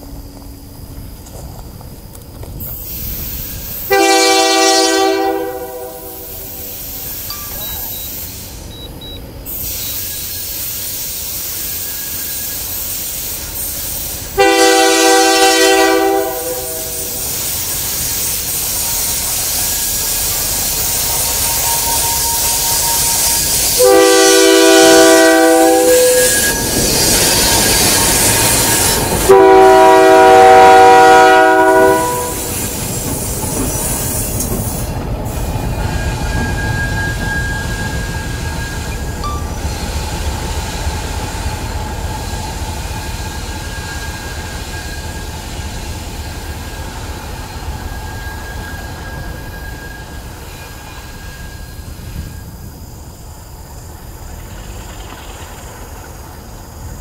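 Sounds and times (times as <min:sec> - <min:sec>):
train rumbling by: 0:00.0 - 0:57.0
locomotive air horn blasts: 0:03.8 - 0:06.8, 0:14.3 - 0:17.4, 0:21.2 - 0:26.9, 0:27.5 - 0:32.7.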